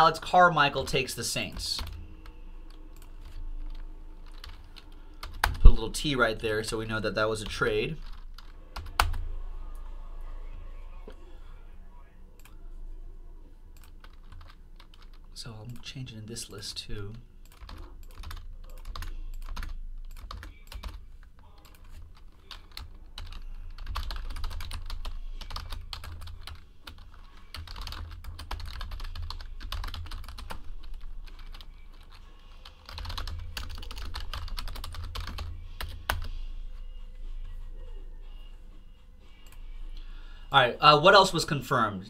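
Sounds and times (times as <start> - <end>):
keyboard typing: 1.5 - 9.2, 13.7 - 15.9, 17.4 - 36.8.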